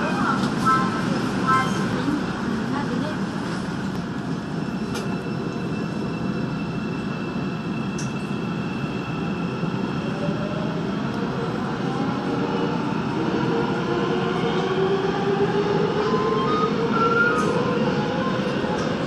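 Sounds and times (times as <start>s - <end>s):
train running and rail noise: 0.0s - 19.0s
train whine rising in pitch: 4.6s - 19.0s.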